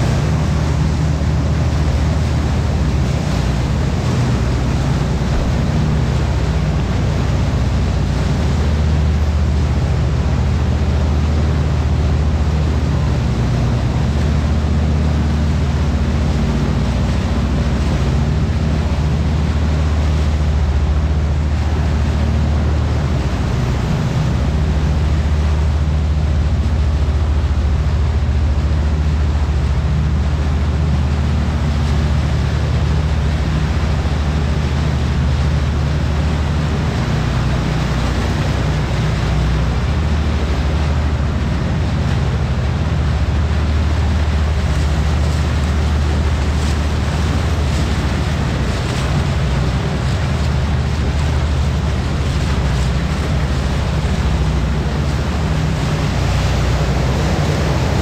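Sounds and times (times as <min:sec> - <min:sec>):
boat engine humming: 0:00.0 - 0:58.0
water rushing: 0:00.0 - 0:58.0
wind: 0:00.0 - 0:58.0.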